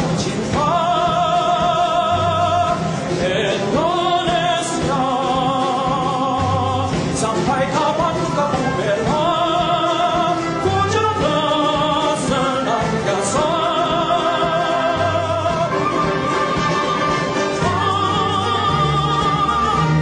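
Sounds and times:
orchestra playing slow melody: 13.9s - 20.0s.

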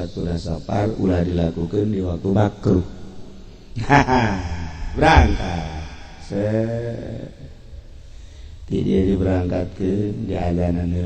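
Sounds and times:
man speaking: 3.8s - 7.3s.

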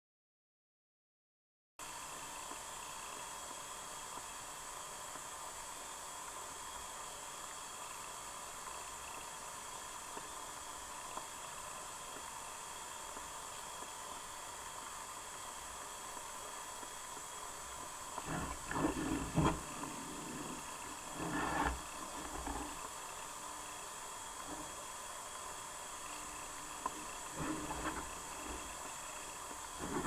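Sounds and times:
underwater hiss: 1.9s - 30.0s
faint whine: 5.0s - 30.0s
muffled rumbling and knocks: 18.3s - 22.8s, 27.4s - 28.6s, 29.8s - 30.0s.

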